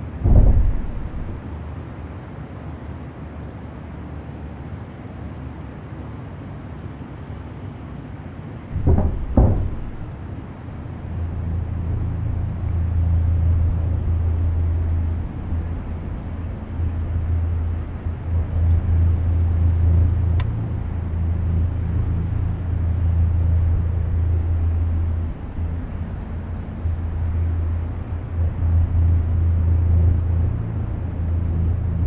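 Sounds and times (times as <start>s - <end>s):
low rumbling drone: 0.0s - 3.6s, 8.7s - 32.0s
heavy thuds: 0.2s - 1.6s, 8.7s - 13.1s.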